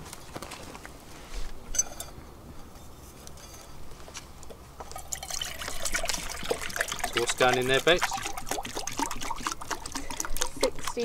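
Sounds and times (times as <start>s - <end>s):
water pouring into metal cup: 4.9s - 11.0s.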